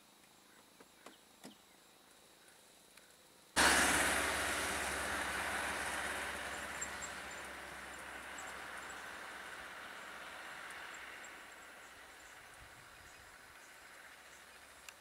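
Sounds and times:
vehicle engine and road noise: 3.6s - 15.0s.

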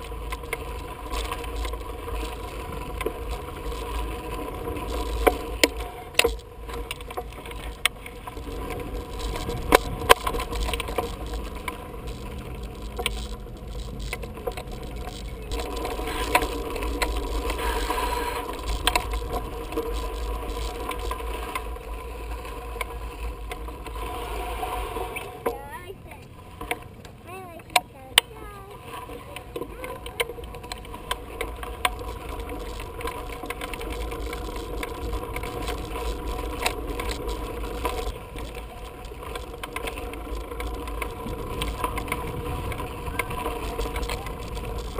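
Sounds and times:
bicycles rattling over dirt jumps: 0.0s - 44.9s
wind buffeting microphone: 40.2s - 44.9s.

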